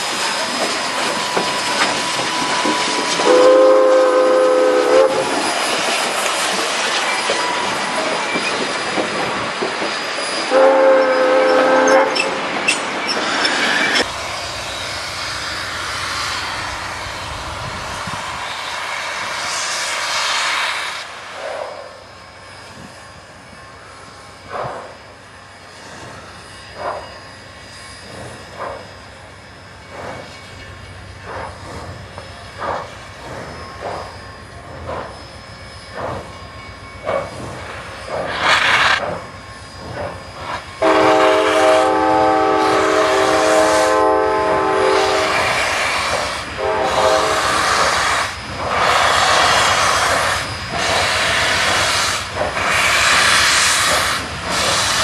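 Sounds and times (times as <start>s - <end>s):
steam locomotive exhaust chuffs: 0.0s - 12.6s, 13.3s - 55.0s
rhythmic steam hissing: 0.0s - 55.0s
steam whistle blast: 3.2s - 5.4s, 10.5s - 12.4s, 40.8s - 50.0s.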